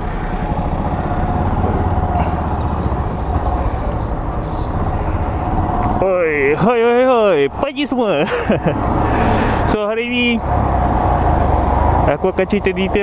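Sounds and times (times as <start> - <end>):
motorcycle engine running: 0.0 - 7.9.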